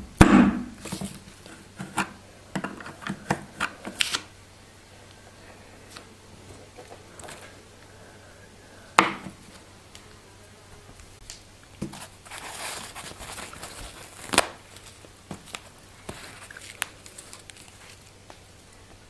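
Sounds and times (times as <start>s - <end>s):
paper towel tearing and rustling: 3.5s - 4.3s, 11.8s - 18.3s.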